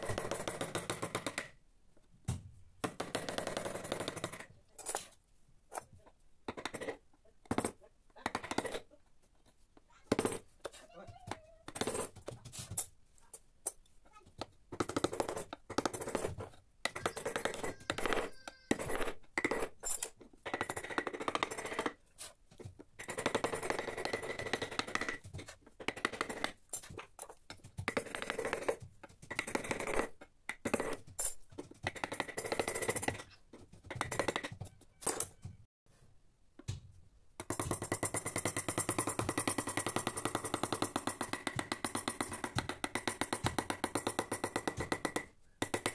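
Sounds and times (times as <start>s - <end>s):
chisels scraping wood: 3.0s - 10.9s, 11.6s - 35.4s.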